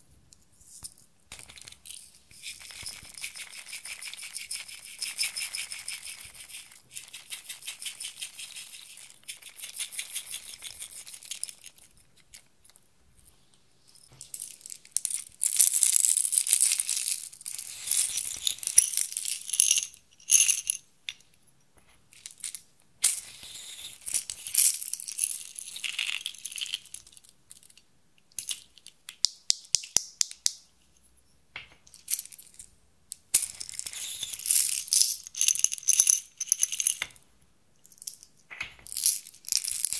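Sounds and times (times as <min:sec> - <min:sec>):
tiny beads rattling into glass dish: 0:01.3 - 0:11.8, 0:14.2 - 0:20.8, 0:33.4 - 0:37.1, 0:38.9 - 0:39.9.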